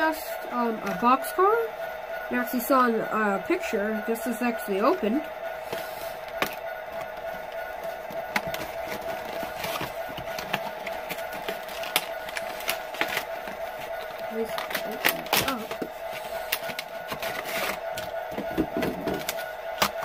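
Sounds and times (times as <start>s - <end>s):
steady background hum: 0.0s - 20.0s
packaging clicks and rustles: 5.7s - 20.0s.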